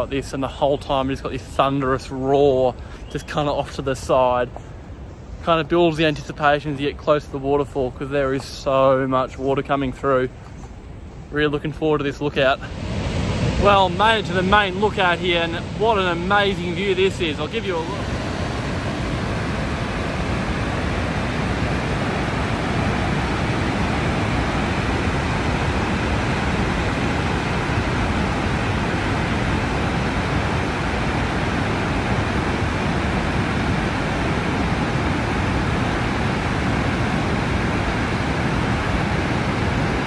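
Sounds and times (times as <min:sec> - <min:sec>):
waterfall roaring: 0:12.1 - 0:40.0.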